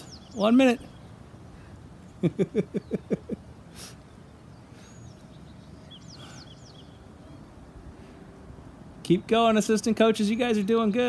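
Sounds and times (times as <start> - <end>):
high bird chirps: 0.0 - 1.2, 4.0 - 7.6.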